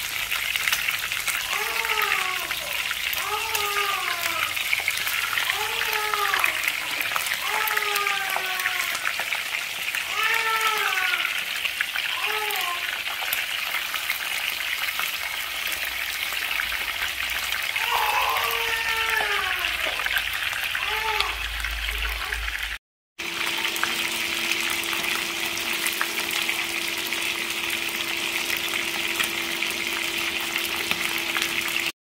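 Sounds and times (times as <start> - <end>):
fish frying in hot oil: 0.0 - 32.0
brief high calls: 17.8 - 19.3.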